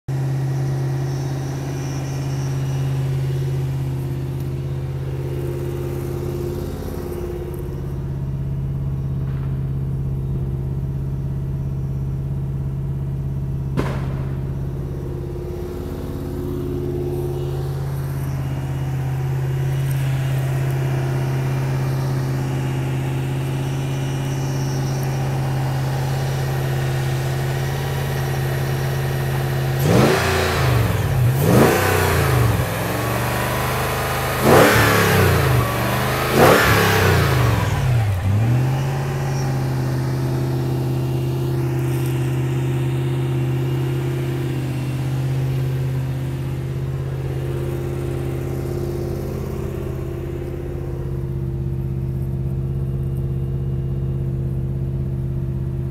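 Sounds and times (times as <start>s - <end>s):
car engine fast idle: 0.1s - 55.9s
firecracker pop: 13.8s - 14.5s.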